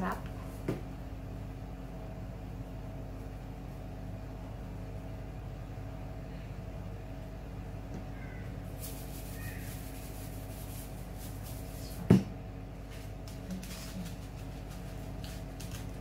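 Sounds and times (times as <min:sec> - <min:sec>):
plastic shaker rattling: 0:08.8 - 0:11.9
shaker knocked on table: 0:12.0 - 0:12.3.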